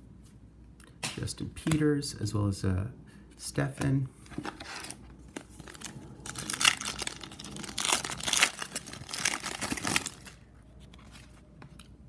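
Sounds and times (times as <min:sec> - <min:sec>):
foil wrapper crinkling and tearing: 0:05.6 - 0:10.4.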